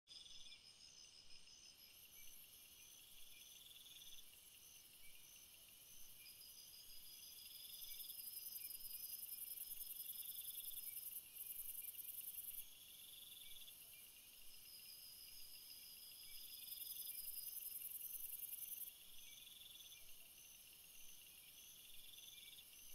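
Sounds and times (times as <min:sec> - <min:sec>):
insects chirping: 0:00.2 - 0:22.9.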